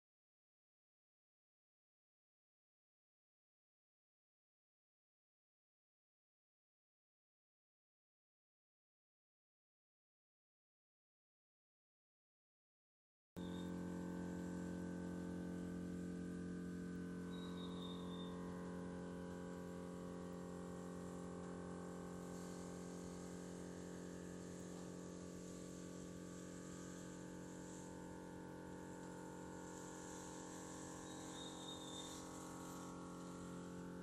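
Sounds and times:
electrical hum with fixed tones: 0:13.4 - 0:34.0.

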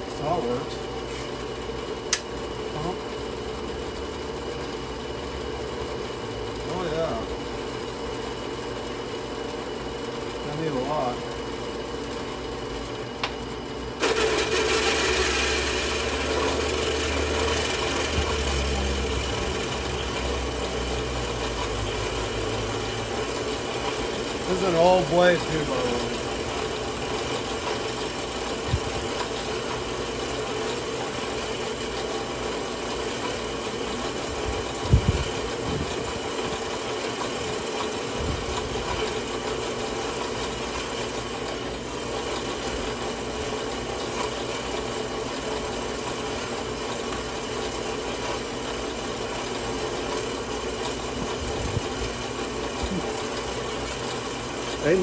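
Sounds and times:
bandsaw cutting metal: 0:14.0 - 0:34.2.

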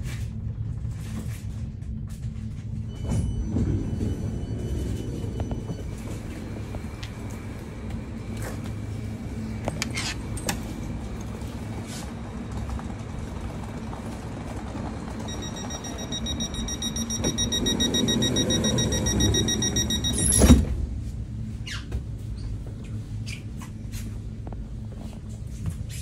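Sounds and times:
train equipment humming: 0:01.8 - 0:25.6
door-closing warning tone: 0:02.8 - 0:08.6, 0:15.2 - 0:20.8
sliding door moving: 0:02.9 - 0:20.9.

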